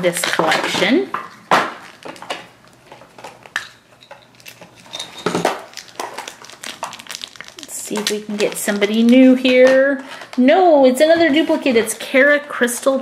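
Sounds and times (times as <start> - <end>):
foil wrapper rustling: 4.3 - 10.4.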